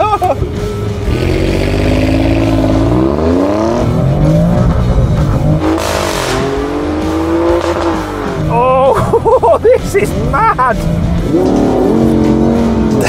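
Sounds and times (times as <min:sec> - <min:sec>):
car engine accelerating hard: 0:00.2 - 0:08.6, 0:10.0 - 0:13.0.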